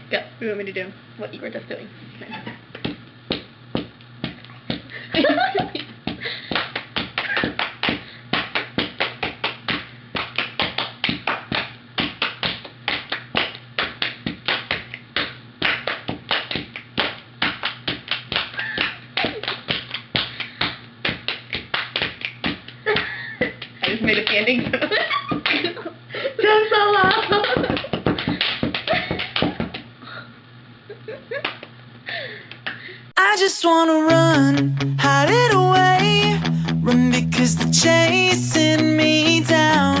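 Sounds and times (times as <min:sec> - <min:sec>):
palms clapping and patting: 0:02.7 - 0:25.8, 0:27.0 - 0:29.9, 0:31.4 - 0:31.7.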